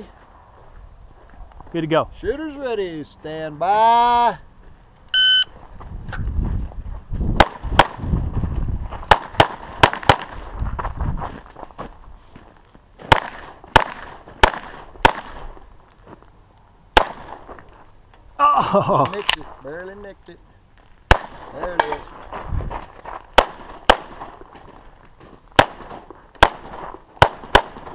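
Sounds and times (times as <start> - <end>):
shot timer beep: 5.1 - 5.5
pistol shots: 7.4 - 8.0, 9.1 - 10.4, 13.1 - 15.4, 17.0 - 17.4, 21.1 - 22.0, 23.4 - 24.3, 25.6 - 27.9.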